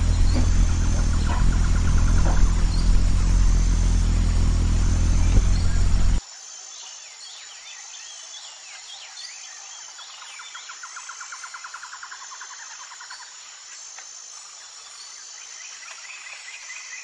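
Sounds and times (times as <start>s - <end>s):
birds chirping: 0.0s - 6.2s
loud low hum: 0.0s - 6.2s
pulsing insect trill: 0.0s - 6.2s.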